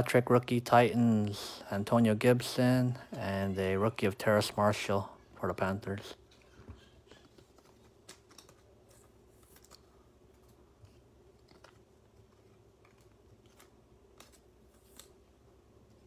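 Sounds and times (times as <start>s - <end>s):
trading cards flipped by hand: 7.2s - 15.3s.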